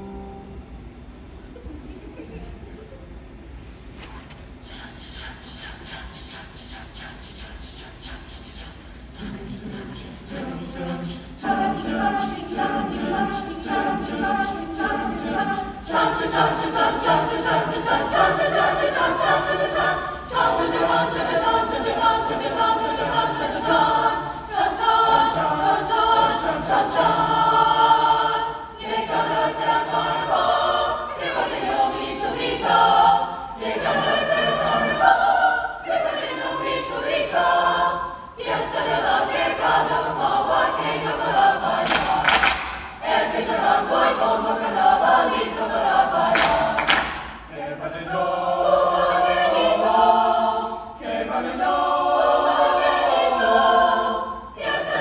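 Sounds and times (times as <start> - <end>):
mixed choir singing: 4.0 - 55.0
singers clapping hands: 41.8 - 43.2, 46.2 - 47.5.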